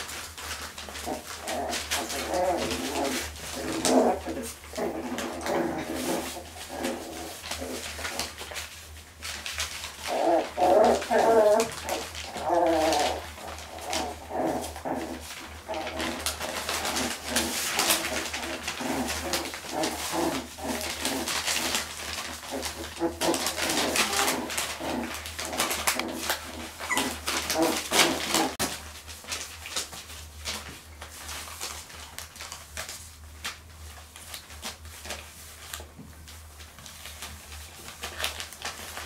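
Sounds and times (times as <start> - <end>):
puppies growling and whining: 0.0 - 28.8
scuffle of paws: 0.0 - 39.0.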